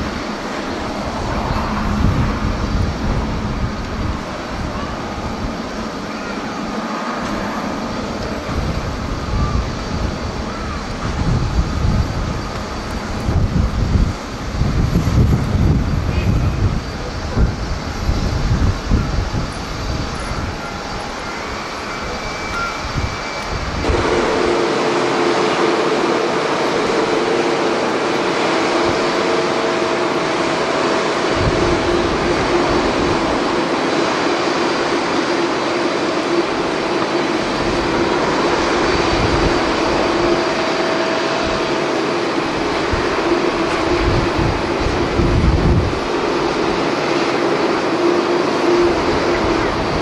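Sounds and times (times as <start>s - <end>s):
jet engines roaring: 0.0s - 50.0s
steady whine: 0.0s - 50.0s
wind buffeting microphone: 0.0s - 50.0s.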